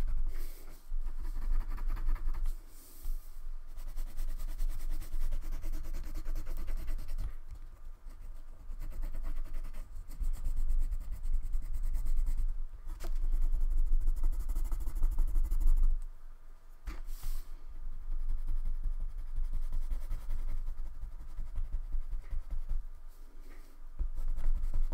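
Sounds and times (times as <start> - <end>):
crayon scribbling on paper: 3.7 - 7.4, 8.1 - 12.5, 18.0 - 22.8.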